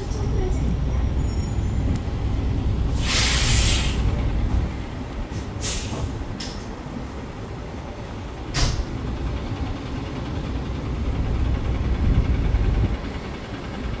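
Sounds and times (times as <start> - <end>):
bus engine low rumble: 0.0 - 14.0
compressed air hiss: 2.9 - 4.1, 5.3 - 6.1.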